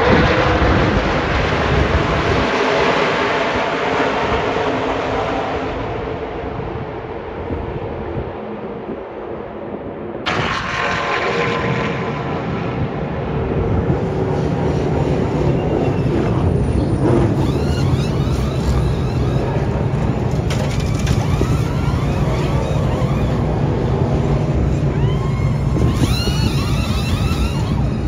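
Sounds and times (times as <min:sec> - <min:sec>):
race truck engines roaring past: 0:10.3 - 0:28.0.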